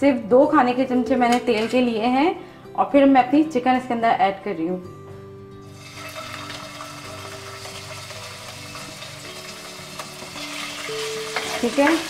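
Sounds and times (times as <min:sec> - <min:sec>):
soft background music: 0:00.0 - 0:12.0
oil sizzling: 0:05.6 - 0:12.0.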